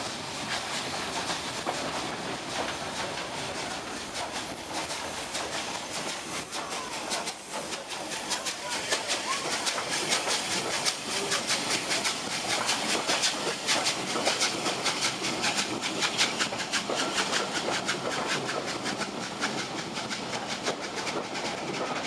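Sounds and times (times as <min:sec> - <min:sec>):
steam hissing from locomotive: 0:00.0 - 0:22.0
train wheels clicking over rail joints: 0:00.0 - 0:22.0.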